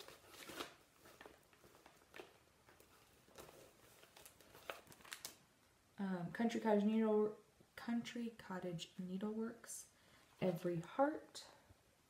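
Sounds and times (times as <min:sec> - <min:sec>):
soft crackles: 0:00.0 - 0:05.5
plastic sleeves rustling: 0:00.0 - 0:05.6.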